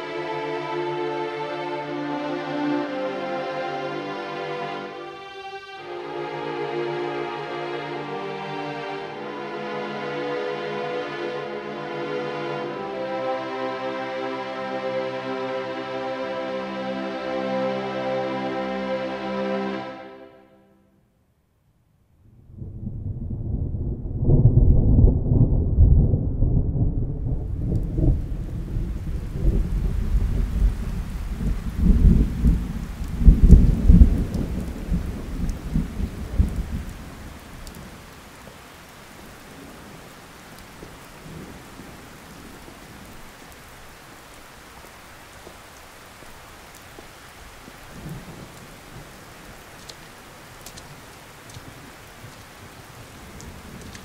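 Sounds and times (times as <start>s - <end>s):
steady rain: 0.0s - 20.4s, 22.3s - 54.0s
rolling thunder: 22.3s - 44.3s, 47.7s - 49.8s.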